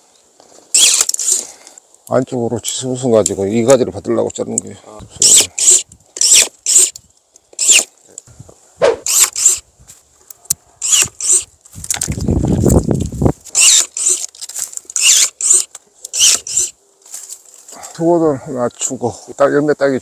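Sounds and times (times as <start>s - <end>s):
branches rustling: 0.0s - 4.5s, 5.1s - 19.5s
rasping pruning cuts: 0.7s - 1.5s, 5.2s - 7.9s, 8.8s - 9.6s, 10.8s - 16.8s.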